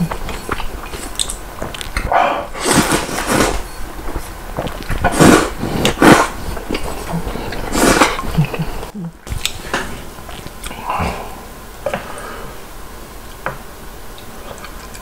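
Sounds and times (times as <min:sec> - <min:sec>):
man slurping noodles: 0:04.6 - 0:08.9.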